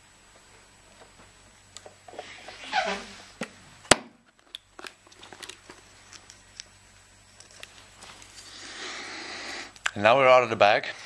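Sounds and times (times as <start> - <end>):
film rustling: 4.2 - 8.6.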